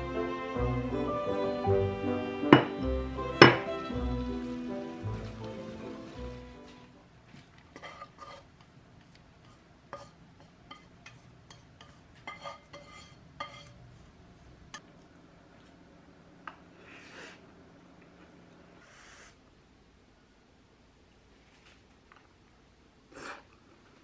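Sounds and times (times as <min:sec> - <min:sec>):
pan clinking against ceramic bowl: 0:02.5 - 0:02.8, 0:03.4 - 0:03.7
chopsticks tapping frying pan: 0:02.5 - 0:04.1.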